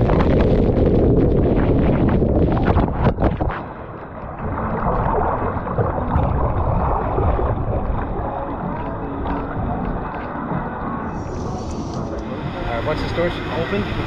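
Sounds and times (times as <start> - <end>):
water rushing and splashing: 0.0 - 14.0
water washing along a trough: 4.4 - 14.0.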